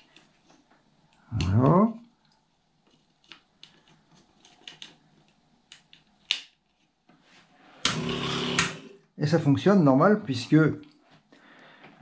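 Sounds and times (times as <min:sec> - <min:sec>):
clicks of connectors being handled: 0:02.3 - 0:06.9.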